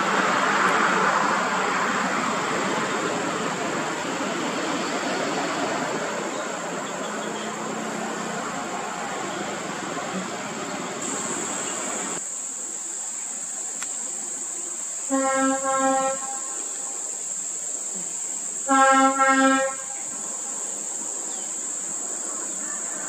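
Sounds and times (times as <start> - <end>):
road traffic noise: 0.0 - 23.0
high-pitched insect drone: 10.2 - 23.0
truck air horn blasts: 15.1 - 16.6, 18.6 - 20.1.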